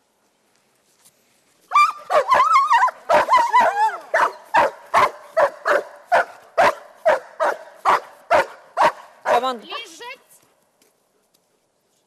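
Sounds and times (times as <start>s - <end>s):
dog whining and yelping: 1.7s - 4.4s
dog barking: 2.1s - 9.5s.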